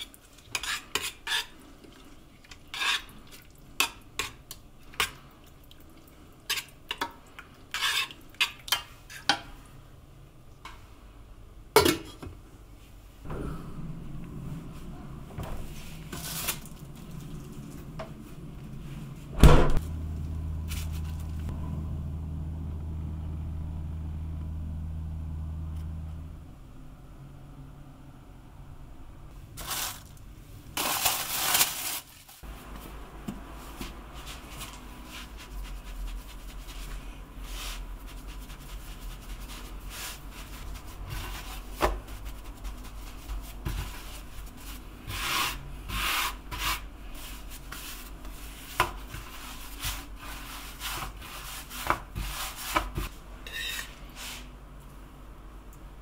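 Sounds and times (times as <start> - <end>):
dough rubbing and scraping on wood: 33.7 - 54.5.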